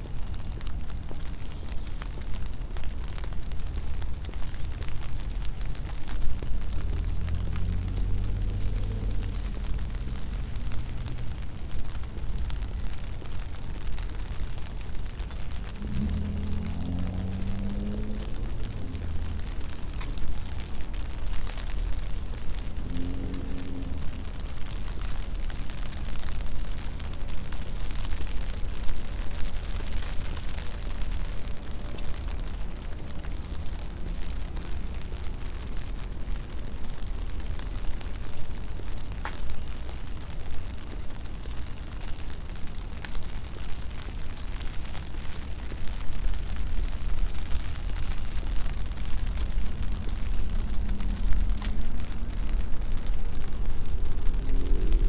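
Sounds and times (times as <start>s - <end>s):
rain hissing: 0.0s - 55.0s
tyres on wet pavement: 0.0s - 55.0s
low rumble: 14.6s - 25.4s, 46.9s - 55.0s.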